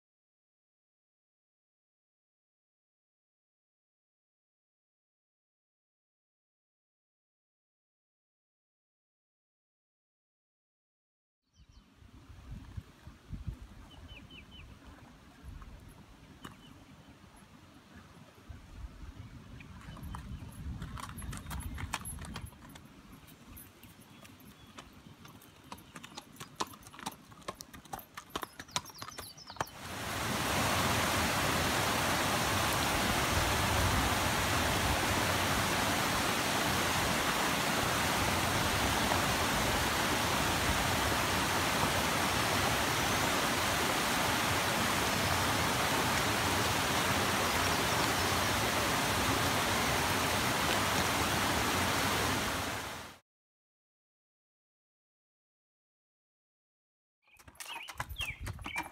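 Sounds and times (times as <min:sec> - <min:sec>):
horse hooves clip-clopping on dirt: 0:15.4 - 0:17.4, 0:19.6 - 0:29.9, 0:57.3 - 0:58.9.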